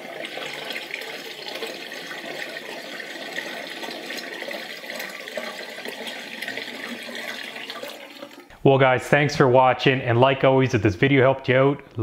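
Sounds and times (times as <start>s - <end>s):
water draining down sink: 0.0s - 8.5s.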